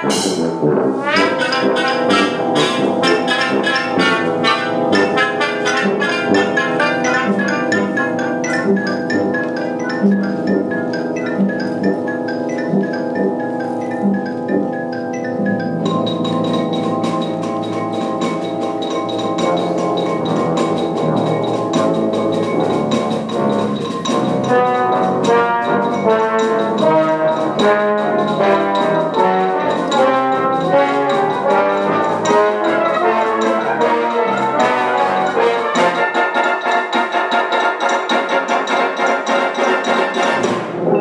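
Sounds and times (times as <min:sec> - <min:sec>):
brass band playing: 0:00.0 - 0:16.0, 0:18.5 - 0:41.0
xylophone: 0:00.0 - 0:41.0.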